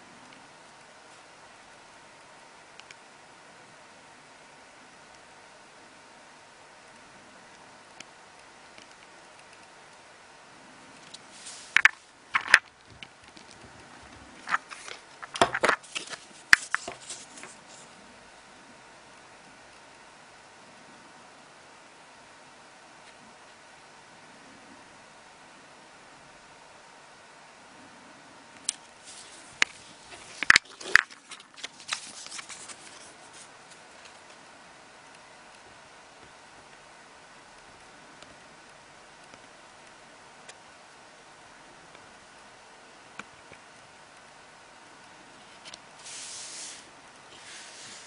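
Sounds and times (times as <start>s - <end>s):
plastic cards clicking and rustling: 11.0s - 13.7s, 14.4s - 17.6s, 29.6s - 34.3s
cards scraping on table: 14.4s - 17.9s, 46.0s - 48.0s.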